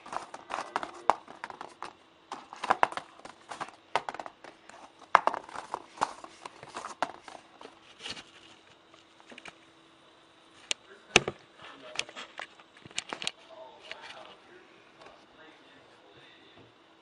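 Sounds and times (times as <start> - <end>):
folded paper crackling and rustling: 0.0 - 9.6.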